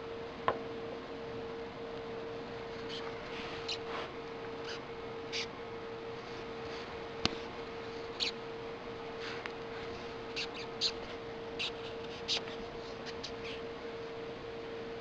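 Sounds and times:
beetle stridulating squeaks: 2.8 - 3.9, 4.6 - 5.5, 8.0 - 8.4, 10.3 - 13.7.

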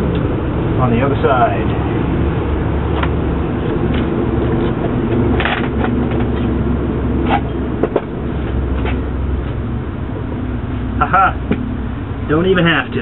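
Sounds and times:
air-powered equipment humming: 0.0 - 13.0
metal knocks and clanks: 7.2 - 9.0.

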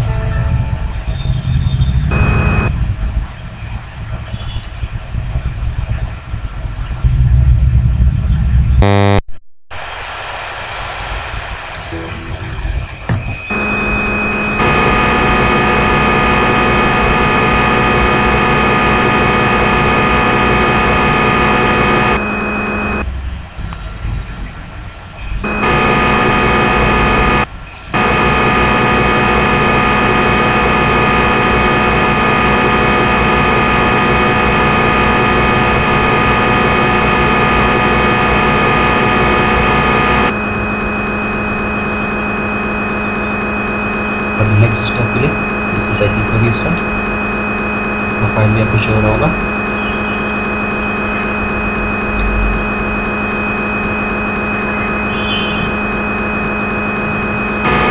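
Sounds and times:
lathe spindle hum: 13.5 - 23.0, 25.4 - 54.9.

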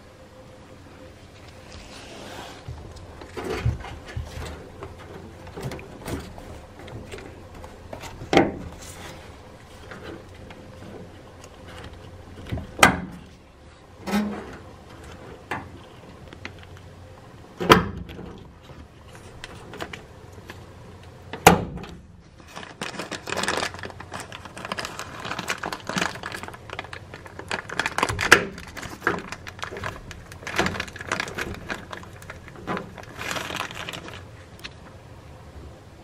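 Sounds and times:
plastic bag crinkling: 22.3 - 34.8.

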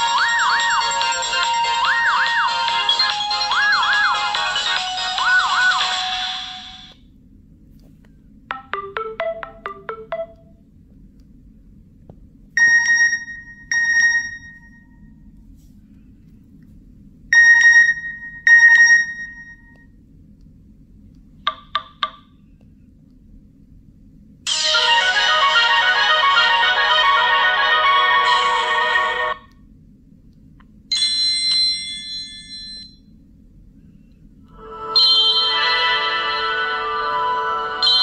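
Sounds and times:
phone alert melody: 8.5 - 10.6.

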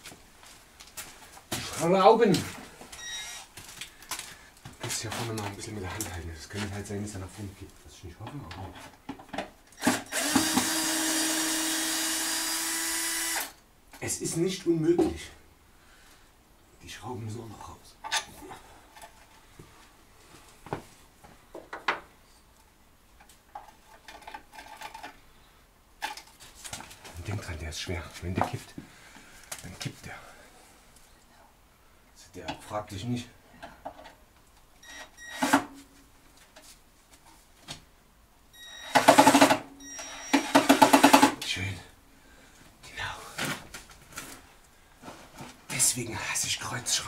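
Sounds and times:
impact driver hammering: 9.9 - 10.8
hand tools clicking and knocking: 40.4 - 41.4.

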